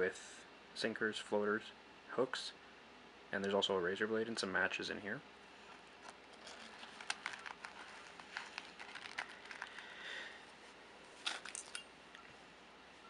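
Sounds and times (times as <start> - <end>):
soft rustling of nylon pouch: 5.7 - 11.6.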